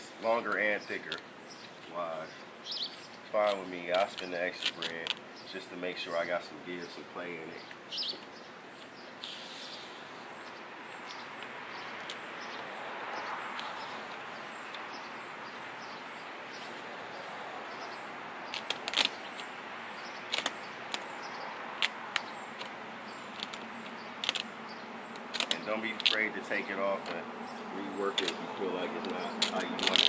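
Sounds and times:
outdoor background noise: 0.0s - 30.0s
vinyl wrap peeling crackles: 18.5s - 19.5s, 25.2s - 27.1s, 28.1s - 30.0s.

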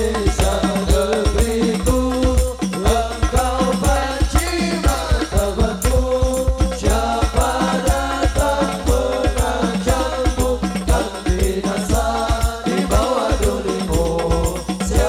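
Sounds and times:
frame drums beating: 0.0s - 15.0s
men singing together: 0.0s - 15.0s
rattling percussion: 0.0s - 15.0s.

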